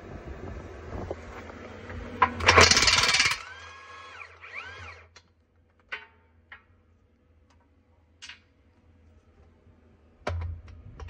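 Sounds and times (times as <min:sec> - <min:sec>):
motor whining: 0:02.4 - 0:05.2.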